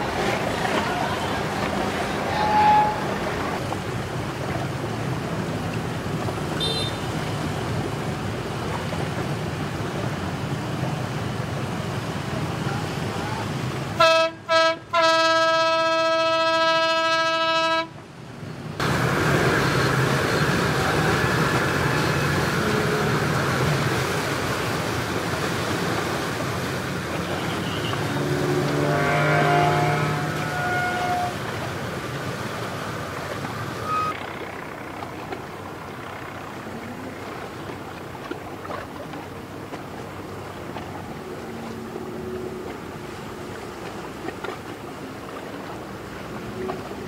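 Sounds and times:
choppy water: 0.0 - 47.0
wind: 0.0 - 47.0
boat horn blasts: 0.6 - 3.6, 6.6 - 7.3, 14.0 - 18.0, 21.4 - 23.3, 27.2 - 31.6, 33.8 - 34.2.

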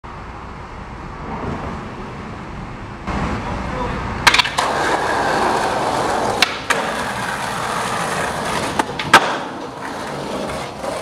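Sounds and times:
skateboard popping and landing: 4.2 - 11.0
skateboard rolling and grinding: 4.2 - 11.0.

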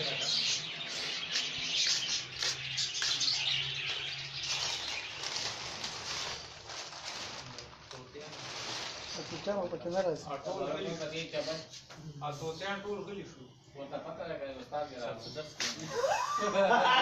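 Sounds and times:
flock of small birds chirping: 0.0 - 6.5.

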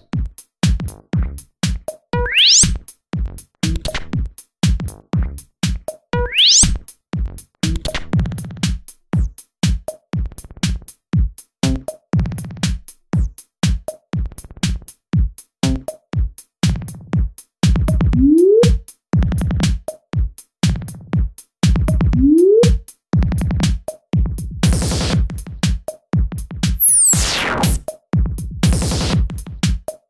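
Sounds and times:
minimal techno music: 15.4 - 19.9, 20.8 - 30.0
upward synth sweep: 26.6 - 27.8.

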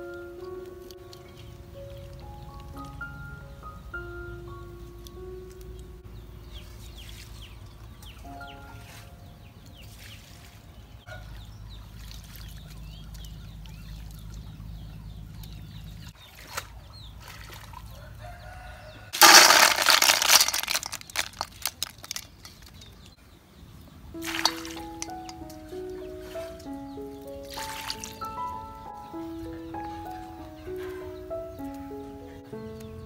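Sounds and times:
water splashing into metal bowl: 24.2 - 25.6, 27.5 - 28.4
water dripping: 24.2 - 28.8.

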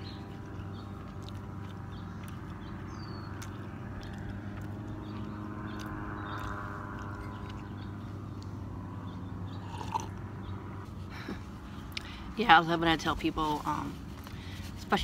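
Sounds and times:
chewing clicks: 0.2 - 8.6.

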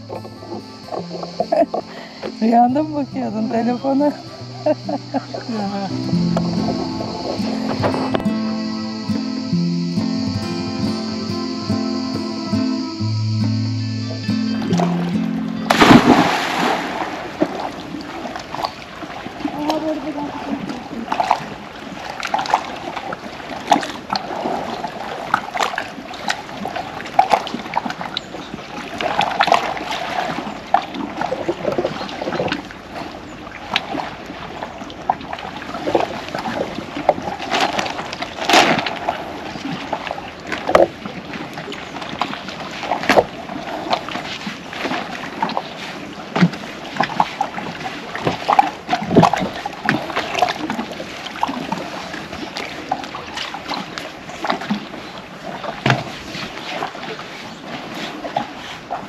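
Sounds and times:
seawater lapping against rocks: 0.0 - 13.2, 14.0 - 59.0
sharp knocks and splashes: 15.7 - 59.0.

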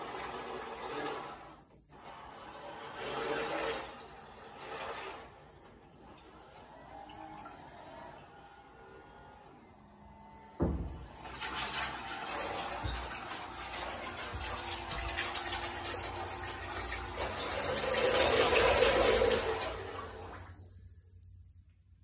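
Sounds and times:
water churning and splashing: 11.2 - 20.6.

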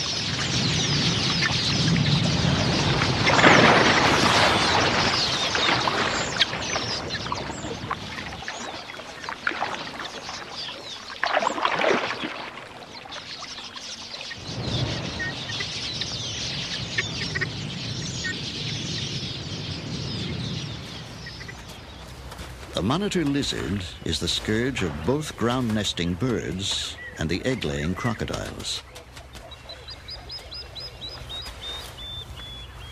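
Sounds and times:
flock of birds chirping: 0.0 - 32.9
crocodile splashing in water: 2.6 - 13.7.

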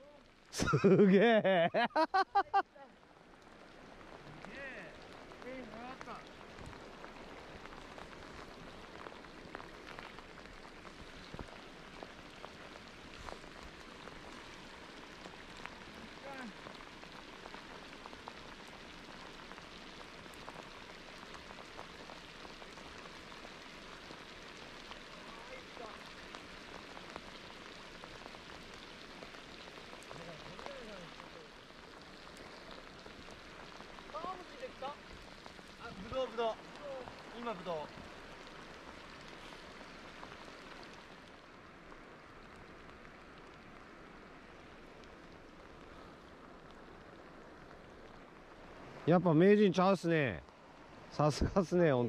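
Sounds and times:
steady rain falling: 0.0 - 52.0.

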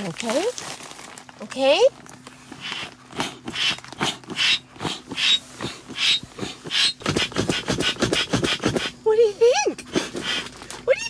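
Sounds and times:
bellows pump whooshing air: 2.5 - 9.2.

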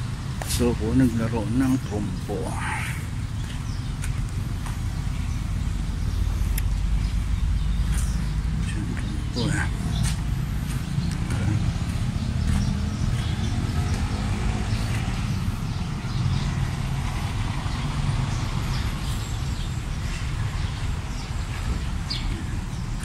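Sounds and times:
road traffic rumble: 0.0 - 23.0
engine tone rising: 4.5 - 18.7.

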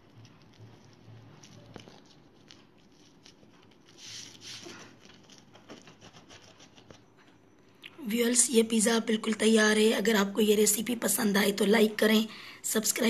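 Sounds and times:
pizza cutter crackling through crust: 0.0 - 7.1.

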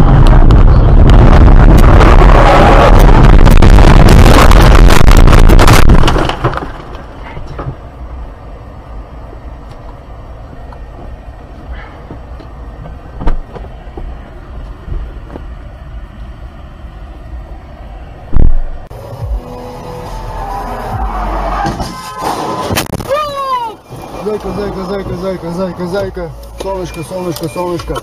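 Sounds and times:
low rumble: 0.0 - 21.3
sharp thump: 18.3 - 18.8.

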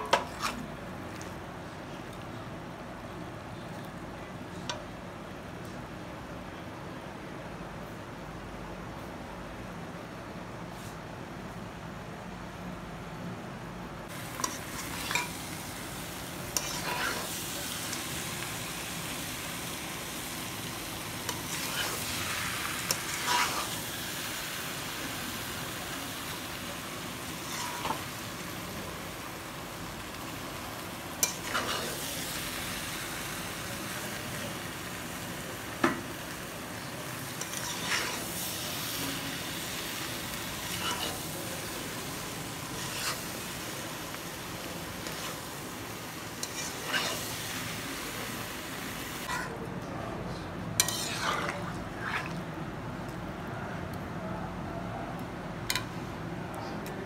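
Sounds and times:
meat sizzling in a pan: 14.1 - 49.5
metal spatula scraping pan: 16.6 - 17.4, 22.9 - 23.8, 46.4 - 47.4, 50.8 - 52.4.

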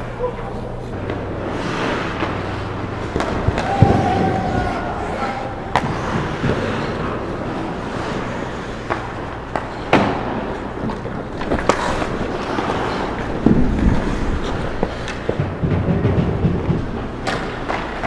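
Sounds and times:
sticks and puck clacking: 0.1 - 18.0
skate blades scraping ice: 0.9 - 18.0
knocks: 13.4 - 18.0.

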